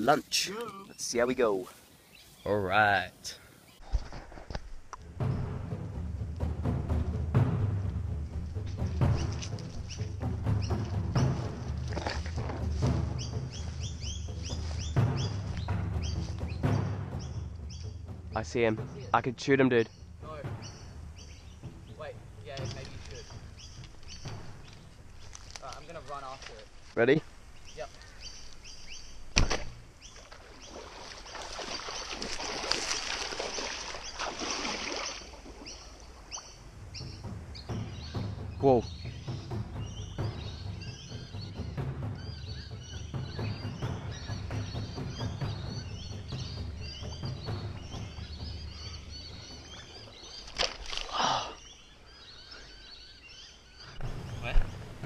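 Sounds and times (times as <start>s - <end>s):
birds chirping: 0.0s - 4.2s, 4.8s - 55.0s
sharp knock: 29.4s - 29.8s
water splashing around wading legs: 29.4s - 36.5s, 49.4s - 51.6s.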